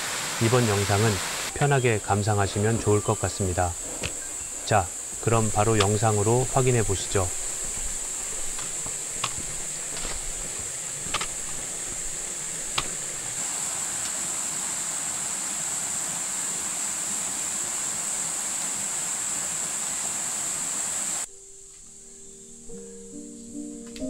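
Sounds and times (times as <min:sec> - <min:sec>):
high-pitched insect chorus: 0:00.0 - 0:24.0
soft hiss: 0:00.0 - 0:24.0
sharp clicks: 0:11.0 - 0:13.2.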